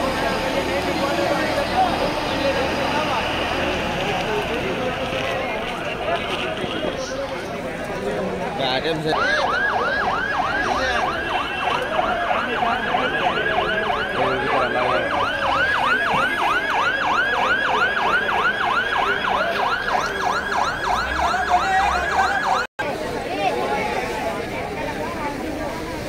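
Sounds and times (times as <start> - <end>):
emergency siren yelping: 9.0 - 22.7.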